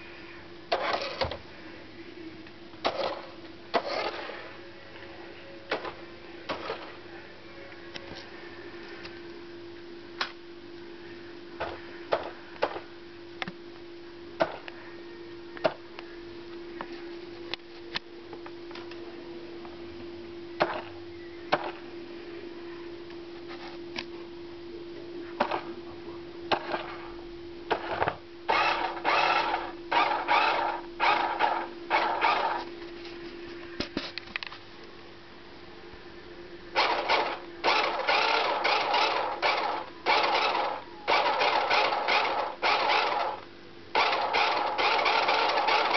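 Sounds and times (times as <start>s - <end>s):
steady hum: 0.0s - 45.9s
toy car motor whirring: 0.7s - 1.4s, 2.8s - 4.4s, 27.7s - 32.7s, 36.8s - 43.4s, 44.0s - 45.9s.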